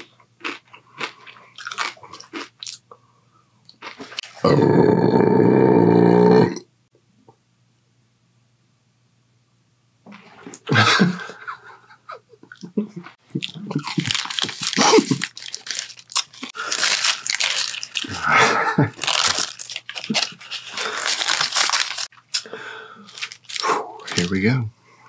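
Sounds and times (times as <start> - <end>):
paper wrapper crinkling: 13.4 - 24.3.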